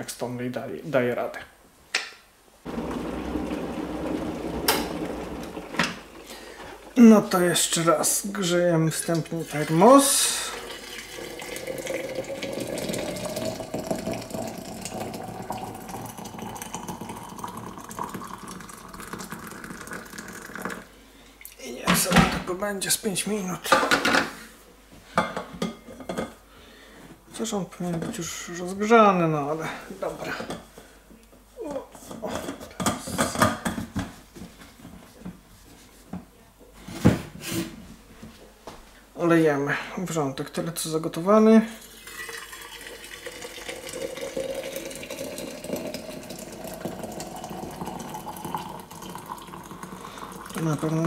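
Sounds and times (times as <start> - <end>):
hot water pouring into jar: 2.7 - 21.6, 41.7 - 51.0.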